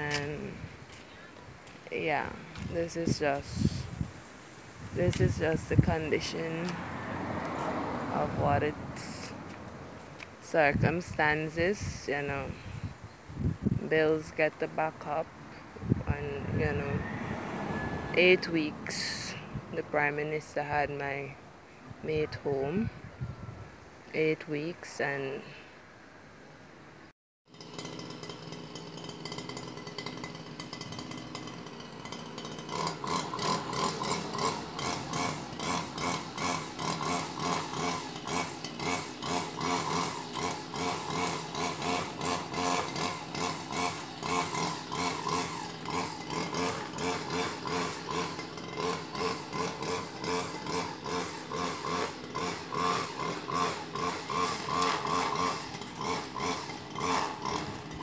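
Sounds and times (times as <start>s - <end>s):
small power tool pulsing: 27.5s - 58.0s.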